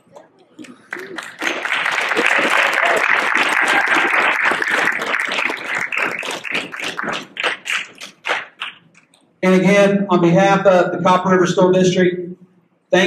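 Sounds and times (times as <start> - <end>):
audience applause: 0.6 - 8.8.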